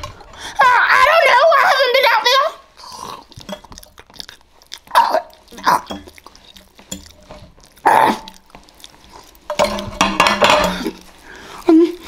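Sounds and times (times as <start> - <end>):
mouth noise from eating: 2.8 - 9.5.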